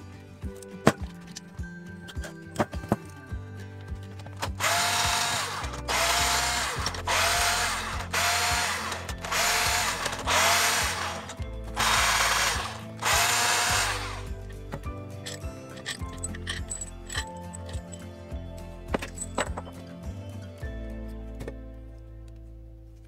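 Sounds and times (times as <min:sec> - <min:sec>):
cordless drill whining: 0:04.5 - 0:14.4.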